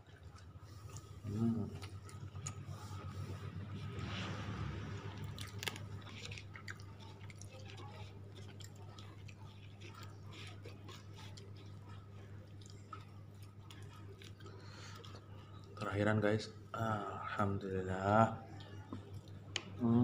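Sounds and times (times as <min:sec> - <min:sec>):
person chewing rice: 0:00.0 - 0:15.9
steady low hum: 0:00.0 - 0:20.0.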